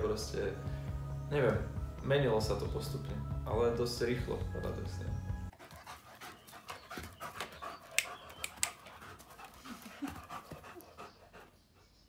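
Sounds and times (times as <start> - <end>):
dog panting: 5.5 - 12.0
sharp clicks: 7.4 - 9.0.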